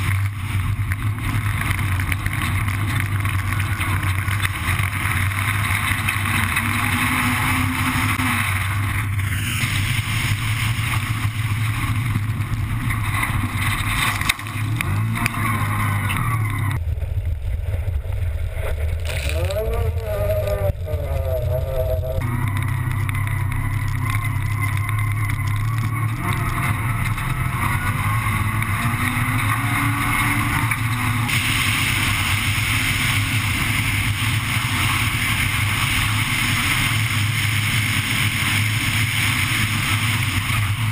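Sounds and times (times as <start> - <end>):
gravel and wind rushing: 0.0 - 40.9
rally car engine revving: 0.0 - 40.9.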